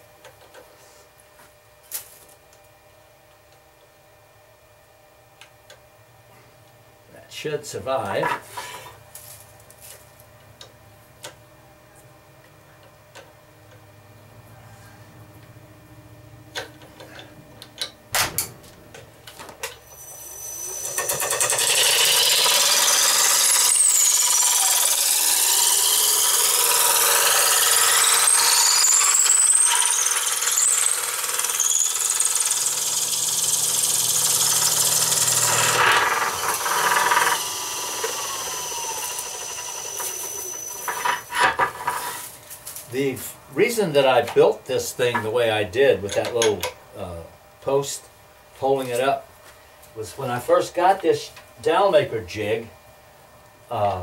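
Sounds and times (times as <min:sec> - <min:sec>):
wood shaving and grinding: 0:19.9 - 0:44.0.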